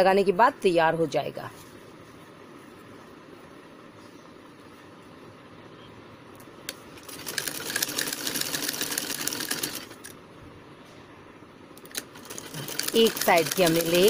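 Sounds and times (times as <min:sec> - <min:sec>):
sewing machine stitching: 0:07.0 - 0:10.0, 0:11.8 - 0:14.0.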